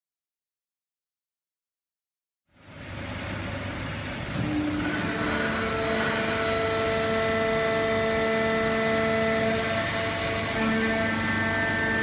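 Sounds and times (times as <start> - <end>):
machine drone: 2.5 - 12.0
machine whining tones: 4.3 - 12.0.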